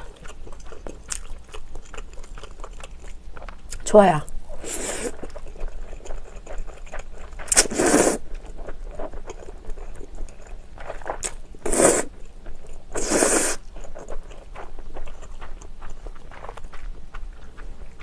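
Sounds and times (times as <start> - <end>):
wet chewing: 0.0 - 18.0
person slurping noodles: 4.6 - 5.2, 7.5 - 8.2, 11.6 - 12.1, 12.9 - 13.6
lip smacks: 4.8 - 8.2, 9.4 - 12.2.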